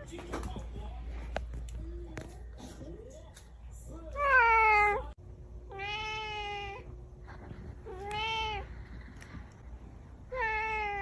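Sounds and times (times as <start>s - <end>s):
cat meowing: 5.7s - 6.9s, 10.3s - 11.0s.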